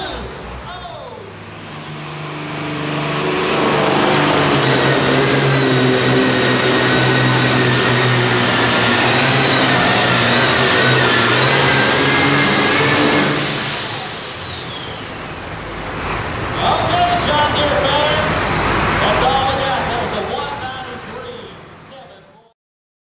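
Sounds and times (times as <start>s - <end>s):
high turbo whistle: 0.0s - 16.8s
diesel tractor engine at full throttle: 0.0s - 21.9s.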